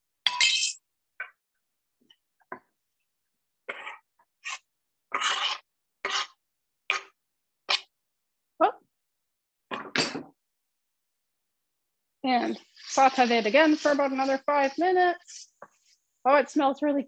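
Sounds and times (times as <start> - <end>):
wooden spatula scraping skillet: 3.8 - 7.2, 12.3 - 16.1.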